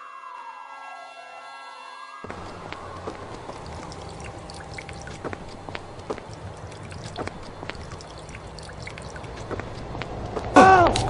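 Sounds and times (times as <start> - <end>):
drips and small splashes: 2.3 - 11.0
water trickling from watering can: 2.3 - 11.0.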